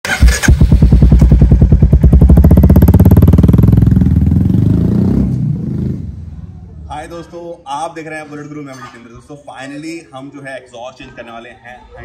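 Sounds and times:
motorcycle engine thumping: 0.1s - 6.3s.

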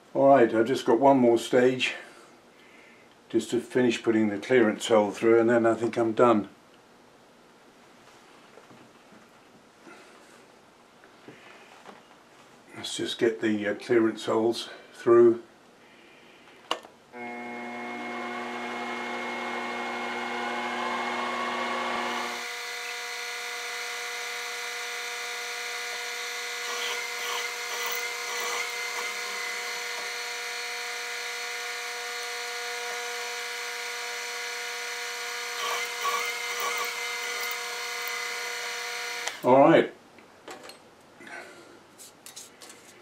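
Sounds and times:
drill bit cutting metal: 17.2s - 39.5s
drill spindle whining: 17.2s - 39.5s.

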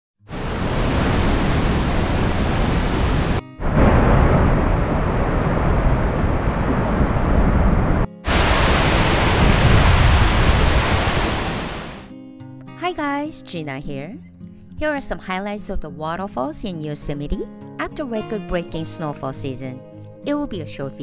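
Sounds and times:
waterfall roaring: 0.3s - 12.1s.

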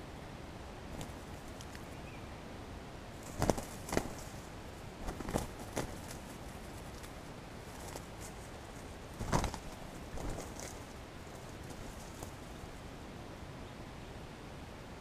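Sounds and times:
steady hiss: 0.0s - 15.0s
wings beating and scuffling in leaves: 0.9s - 2.2s, 3.1s - 13.2s.

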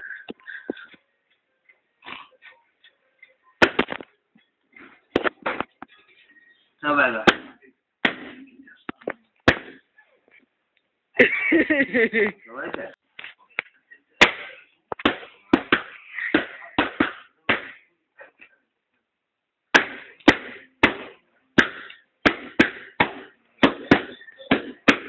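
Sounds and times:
balloons popping: 3.6s - 4.1s, 4.8s - 5.8s, 7.1s - 9.8s, 14.2s - 17.9s, 19.7s - 25.0s.

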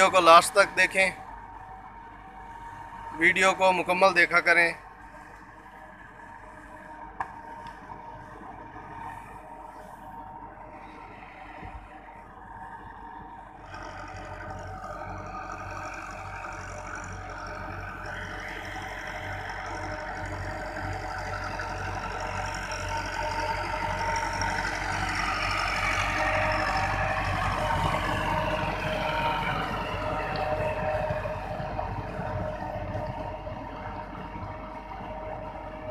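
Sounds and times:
tractor diesel engine running: 0.0s - 35.9s
rotavator churning muddy ground: 12.9s - 35.9s.

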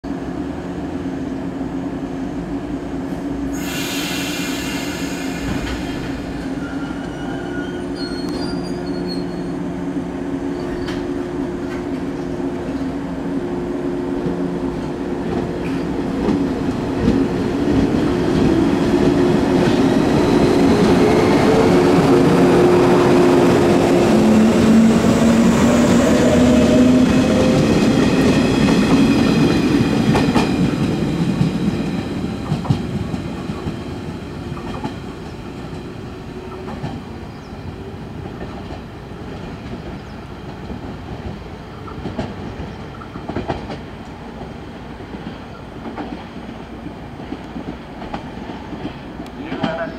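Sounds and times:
electric train pulling away: 3.5s - 9.6s, 15.6s - 38.3s.

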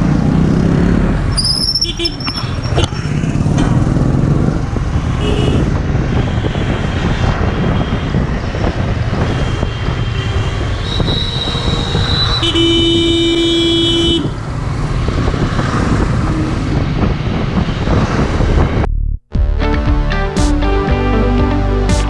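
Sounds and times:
motorcycle engine and road noise: 0.0s - 18.9s
loud truck horn blast: 5.1s - 8.2s, 12.4s - 14.4s
vehicle horns tooting: 5.1s - 8.3s, 9.1s - 14.4s.

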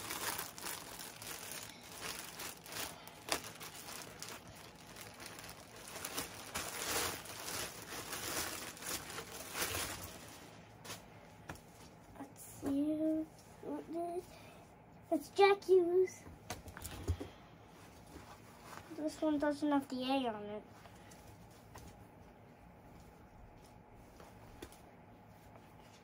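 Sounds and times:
plastic bag crinkling: 0.0s - 10.6s.

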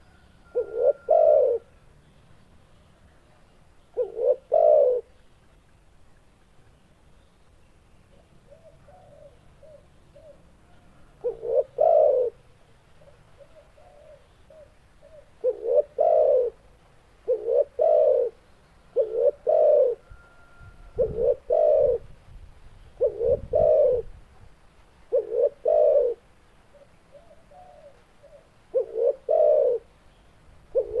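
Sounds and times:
dove cooing: 0.0s - 1.8s, 3.9s - 5.2s, 8.1s - 22.1s, 23.0s - 24.2s, 25.1s - 30.0s, 30.7s - 31.0s.

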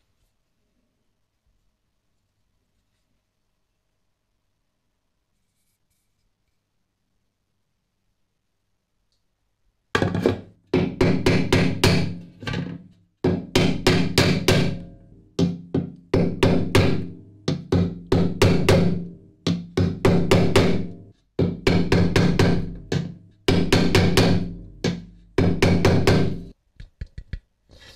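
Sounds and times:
punch striking aluminium bowl: 10.0s - 26.5s.

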